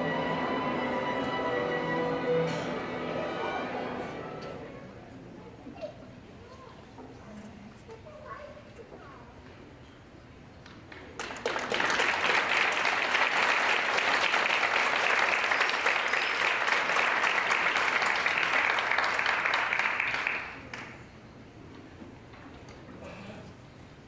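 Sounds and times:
audience applauding: 10.9s - 21.0s.

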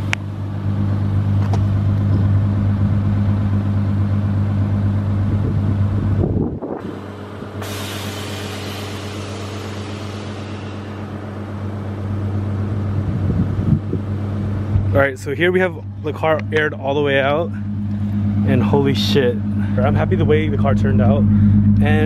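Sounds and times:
car running with low hum: 0.0s - 22.0s.

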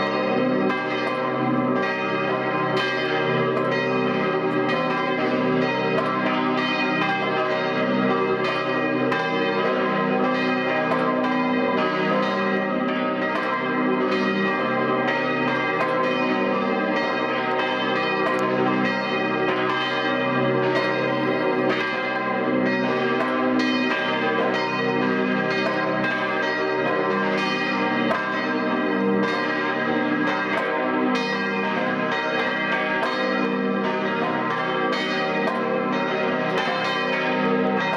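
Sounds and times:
church bells pealing: 0.0s - 37.9s.

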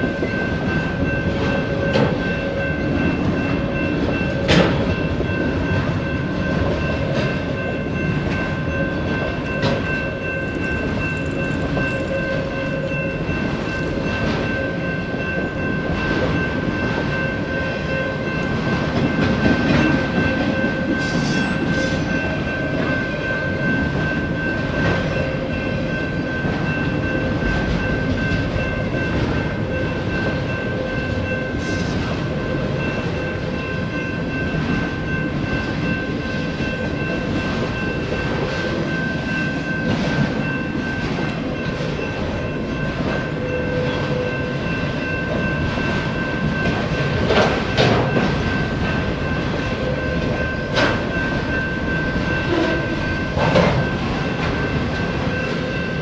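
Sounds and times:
freight train wheels rumbling: 0.0s - 56.0s
steady high-pitched tones: 0.0s - 56.0s.

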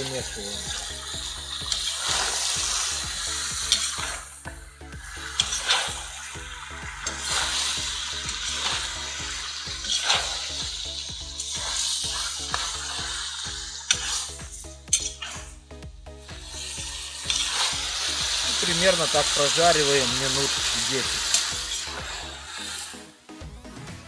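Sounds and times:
chicken sizzling in hot oil: 0.0s - 23.3s
metal spoon scraping pot: 14.9s - 15.5s.

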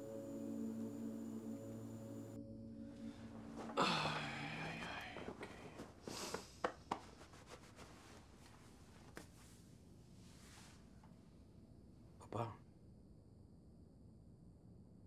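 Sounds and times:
man's breathy exhalation: 3.8s - 6.6s.

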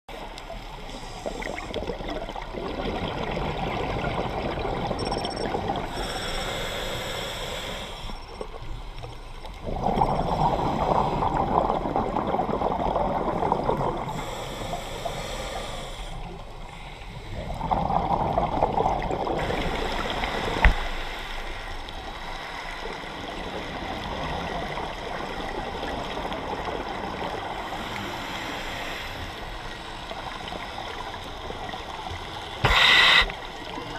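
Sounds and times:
underwater noise: 0.1s - 33.9s
exhaled bubbles rushing: 1.3s - 5.9s, 9.6s - 14.2s, 17.4s - 20.3s
diver breathing through regulator: 5.9s - 8.3s, 14.1s - 18.0s, 32.6s - 33.5s.

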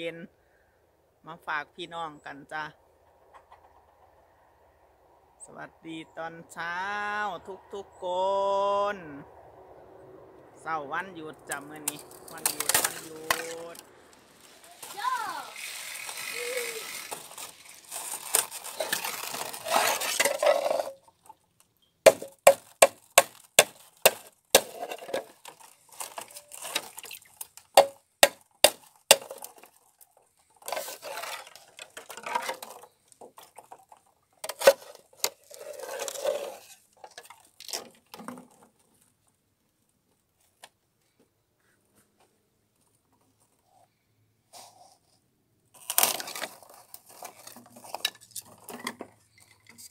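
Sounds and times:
plastic scoop scraping ice: 11.5s - 21.1s, 22.6s - 27.8s, 29.0s - 38.6s, 45.8s - 49.9s
thin ice cracking and clinking: 11.5s - 21.3s, 22.1s - 38.5s, 45.8s - 49.9s
water splashing: 26.0s - 27.5s.

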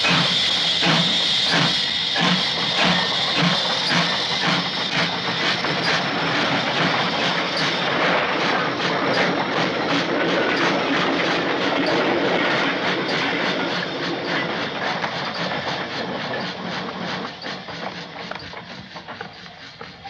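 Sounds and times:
train wheels clattering on rails: 0.0s - 20.0s.

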